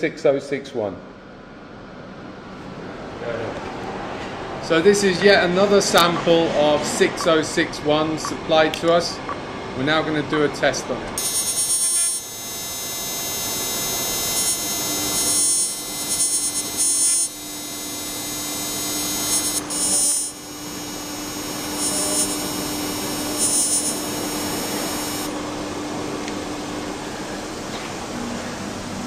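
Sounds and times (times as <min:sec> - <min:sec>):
spark probe buzzing: 0:11.2 - 0:25.4.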